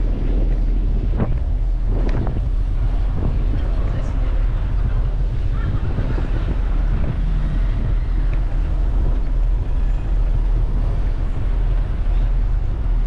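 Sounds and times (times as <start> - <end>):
city street traffic: 0.0 - 13.0
wind buffeting microphone: 0.0 - 13.0.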